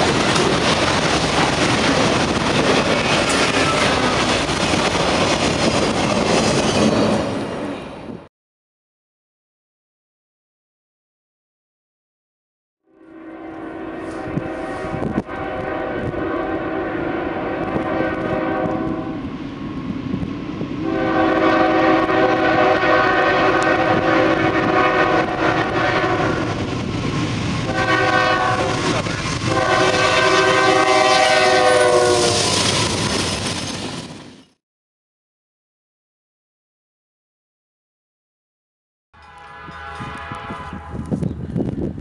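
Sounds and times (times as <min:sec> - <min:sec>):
train rumbling and clattering past: 0:00.0 - 0:08.3, 0:13.6 - 0:34.6
locomotive air horn blasts: 0:12.9 - 0:19.2, 0:20.8 - 0:26.5, 0:27.7 - 0:32.5, 0:39.2 - 0:41.2.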